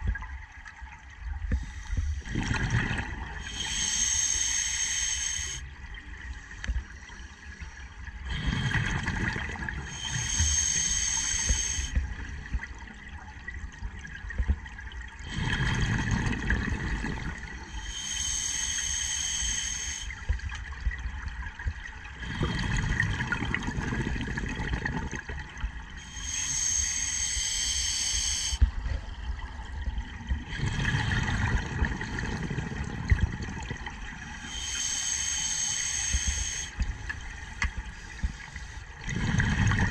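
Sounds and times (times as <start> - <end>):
exhaled bubbles underwater: 0.0 - 6.3, 8.2 - 39.9
regulator hissing inhalation: 3.4 - 5.6, 9.9 - 12.0, 17.7 - 20.3, 26.0 - 28.6, 34.3 - 36.8.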